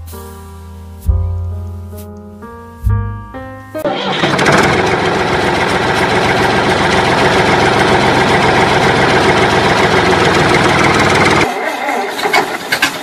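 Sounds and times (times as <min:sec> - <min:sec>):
tractor engine idling: 0:03.9 - 0:13.0.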